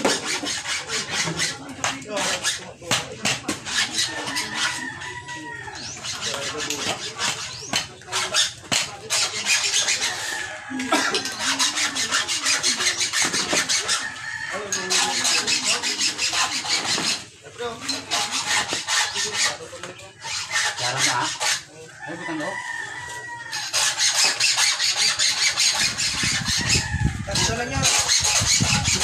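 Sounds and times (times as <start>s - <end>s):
hand file rasping: 0.0s - 5.1s, 5.7s - 21.7s, 23.5s - 29.0s
chickens clucking: 0.0s - 29.0s
rooster crowing: 4.2s - 5.9s, 10.0s - 11.2s, 13.9s - 15.2s, 22.0s - 23.8s.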